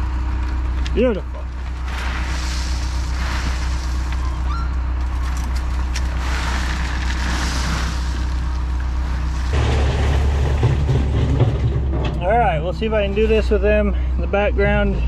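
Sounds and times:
machinery engine running: 0.0s - 15.0s
rock being dumped: 1.5s - 4.4s, 5.2s - 12.7s.

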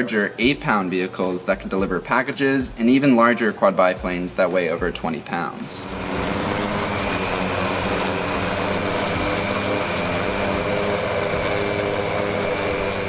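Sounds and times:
drone propellers humming: 5.7s - 13.0s.

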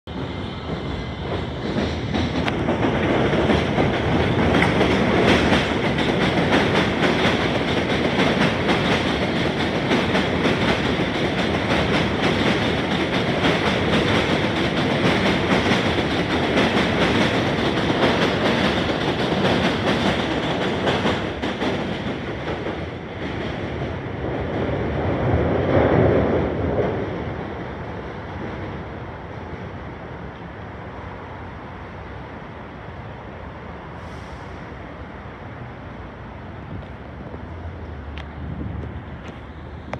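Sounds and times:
train rumbling on elevated track: 0.0s - 39.9s
train wheels clattering over rails: 0.1s - 29.7s.

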